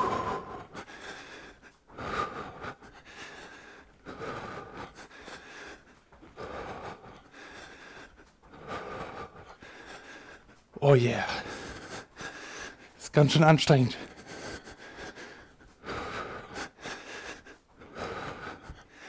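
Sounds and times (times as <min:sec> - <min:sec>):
man breathing hard: 0:00.0 - 0:13.0, 0:13.8 - 0:19.0.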